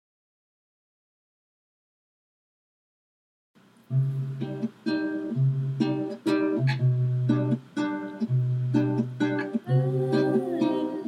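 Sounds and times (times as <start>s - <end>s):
guitar picking chords: 3.9s - 11.0s.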